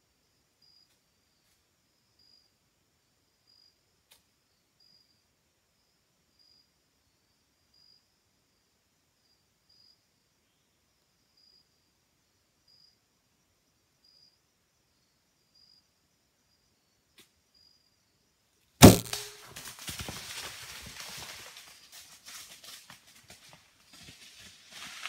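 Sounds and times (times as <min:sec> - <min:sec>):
crickets chirping: 0:00.0 - 0:18.8
bow string thump: 0:18.8 - 0:19.5
crashing through dry leaves: 0:18.8 - 0:25.0.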